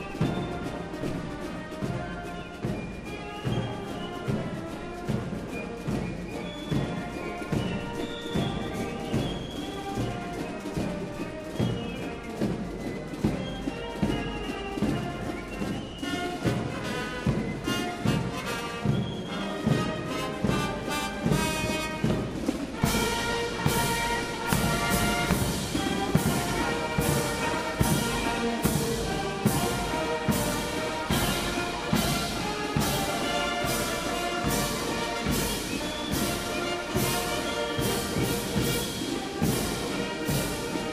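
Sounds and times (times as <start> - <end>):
military band playing a march: 0.0 - 40.9
sharp percussion strikes: 2.6 - 40.9.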